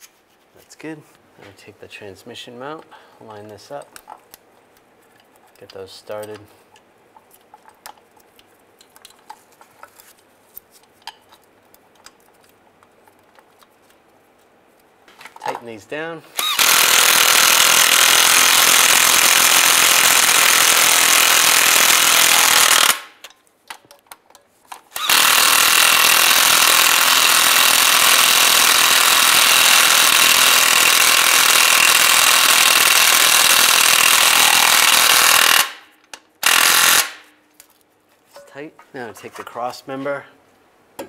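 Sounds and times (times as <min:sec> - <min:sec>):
cordless power tool driving nuts: 0:16.4 - 0:23.2, 0:24.8 - 0:37.2.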